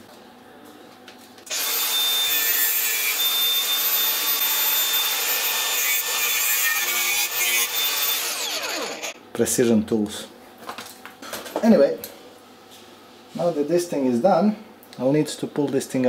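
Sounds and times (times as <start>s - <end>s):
angle grinder whine: 1.5s - 9.2s.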